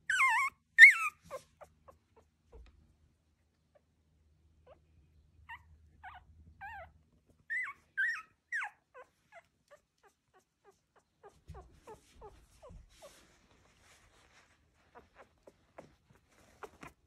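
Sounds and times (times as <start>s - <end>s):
puppy whimpering: 0.0s - 2.7s, 4.6s - 13.4s, 14.9s - 17.0s.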